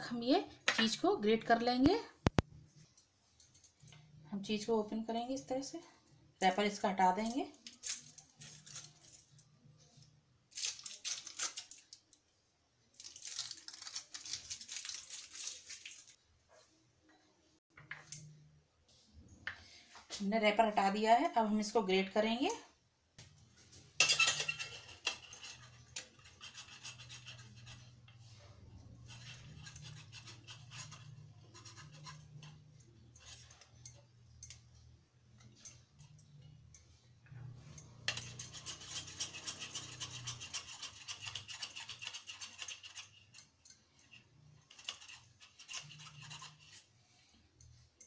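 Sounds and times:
cheese grated on metal grater: 24.0s - 28.0s, 29.0s - 33.7s, 38.1s - 46.9s.

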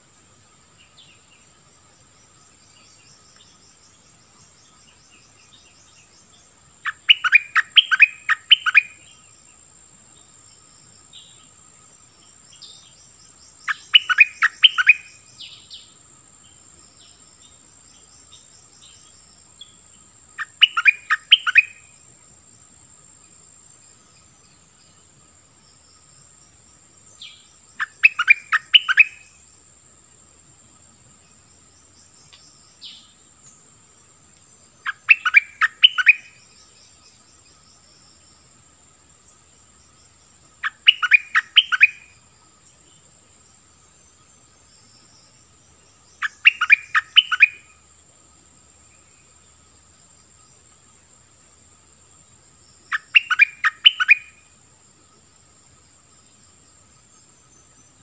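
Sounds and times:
faint high insect whine: 0.0s - 58.0s
bulbul singing: 6.8s - 9.2s, 12.6s - 15.9s, 20.4s - 21.9s, 27.2s - 29.3s, 34.8s - 36.7s, 40.6s - 42.1s, 46.1s - 47.7s, 52.9s - 54.4s.

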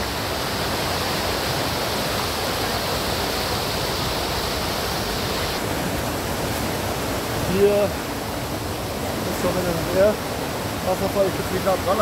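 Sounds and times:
stream rushing over boulders: 0.0s - 12.0s.

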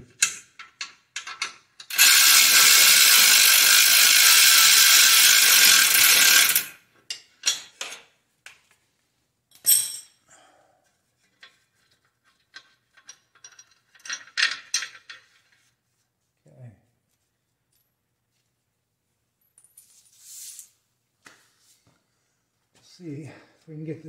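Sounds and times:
cordless ratchet running: 1.8s - 6.8s.

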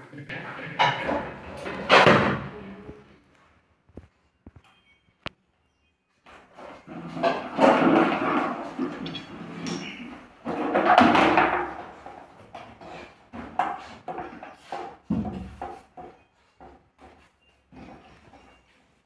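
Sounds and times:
metal pot scraping on tiles: 0.3s - 2.1s, 6.3s - 15.1s.

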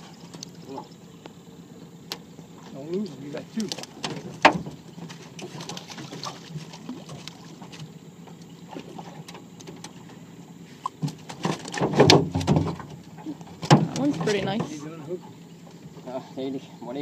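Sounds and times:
water: 0.0s - 17.0s
fish flapping against metal hull: 3.5s - 8.0s, 11.0s - 14.8s.

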